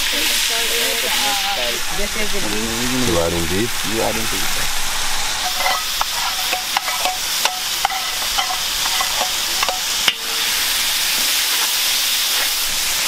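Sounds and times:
meat sizzling in hot oil: 0:00.0 - 0:13.0
metal spoon scraping a pot: 0:05.4 - 0:10.5.

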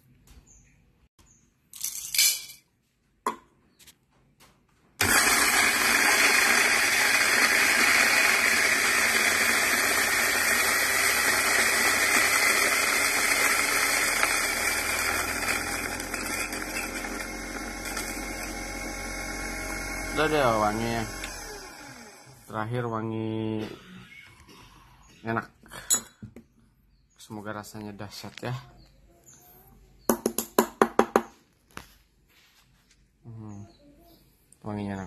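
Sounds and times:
coffee grinder grinding beans: 0:05.0 - 0:22.6.

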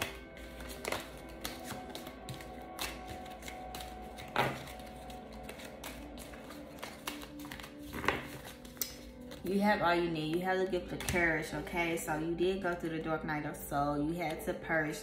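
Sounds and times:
cards tapping and rustling: 0:00.0 - 0:09.4, 0:11.0 - 0:11.2
soft background music: 0:00.0 - 0:15.0.

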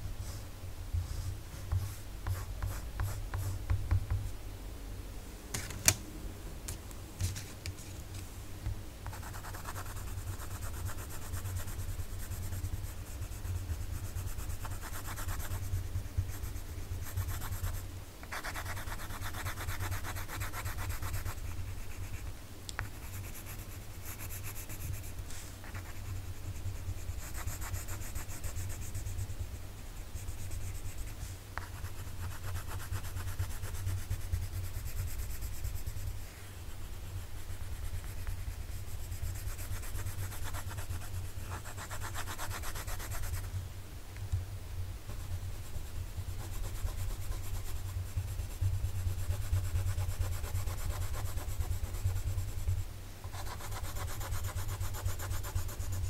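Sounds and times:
steady low hum: 0:00.0 - 0:56.0
pencil scratching on paper: 0:09.1 - 0:29.3, 0:30.2 - 0:43.5, 0:45.2 - 0:52.7, 0:53.3 - 0:56.0.

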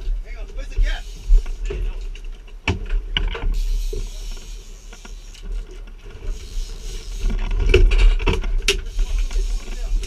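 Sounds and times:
boat engine rumble and hiss: 0:00.2 - 0:02.6, 0:03.2 - 0:07.9, 0:08.5 - 0:10.0.

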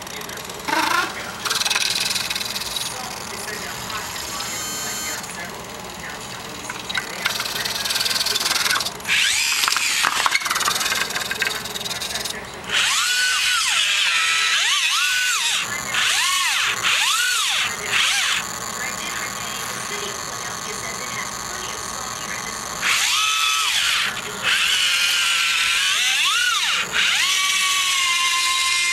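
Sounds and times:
electric motors whining: 0:00.0 - 0:28.9.

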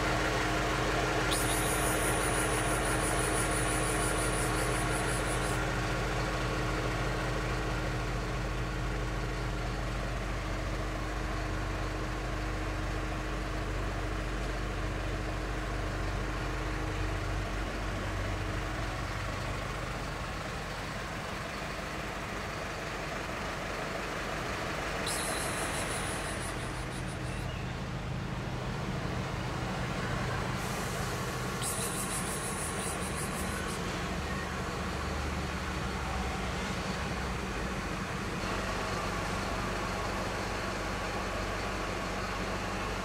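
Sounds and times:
low engine hum: 0:00.0 - 0:43.0.

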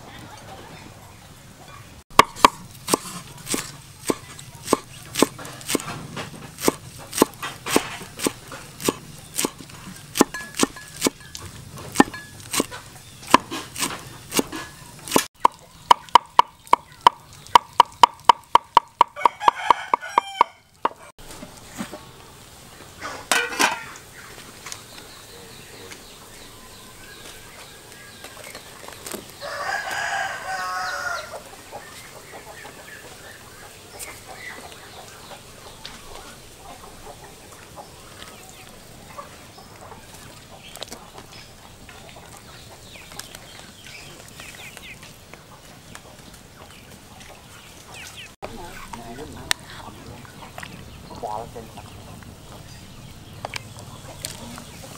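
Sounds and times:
chickens clucking: 0:00.0 - 0:54.9
cleaver chopping on wooden block: 0:02.1 - 0:11.3, 0:11.9 - 0:12.7, 0:13.3 - 0:21.0
rooster crowing: 0:19.0 - 0:20.7, 0:29.4 - 0:31.4.

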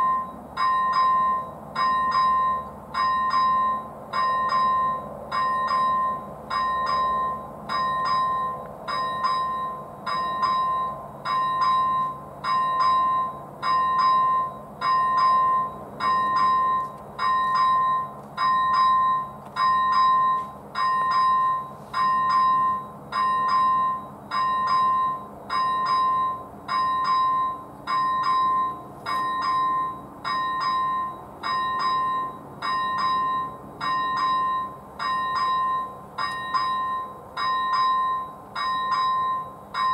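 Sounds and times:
electronic warning bell ringing: 0:00.0 - 0:39.9.

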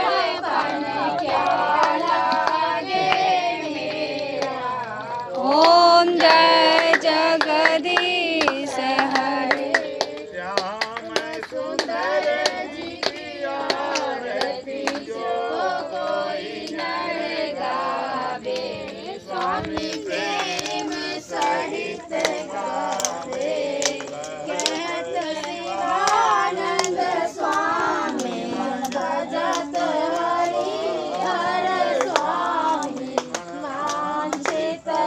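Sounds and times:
hand claps: 0:00.0 - 0:35.0
women and children singing: 0:00.0 - 0:35.0.

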